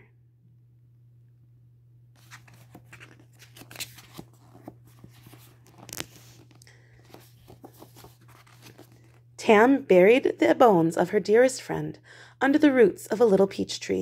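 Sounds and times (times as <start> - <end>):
paper pages rustling: 2.2 - 9.3.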